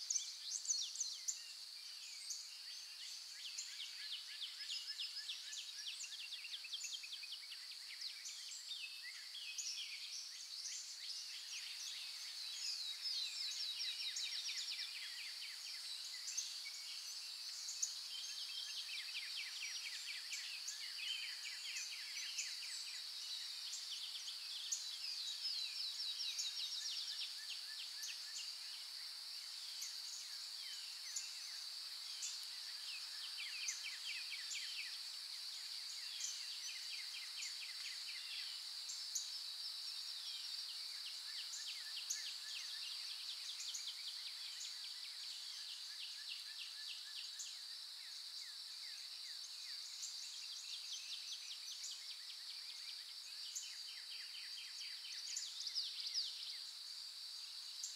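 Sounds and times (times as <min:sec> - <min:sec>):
high insect drone: 0:26.3 - 0:57.9.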